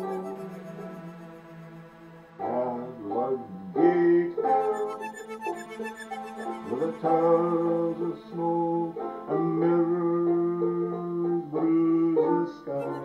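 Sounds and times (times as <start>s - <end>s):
person singing long notes: 0.0s - 13.0s
plucked guitar: 0.0s - 13.0s.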